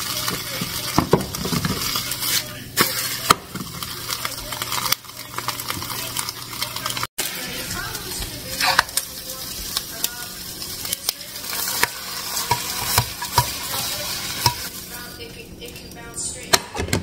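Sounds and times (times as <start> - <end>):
pan sizzling: 0.0 - 16.5
knife scraping a frying pan: 11.5 - 14.8.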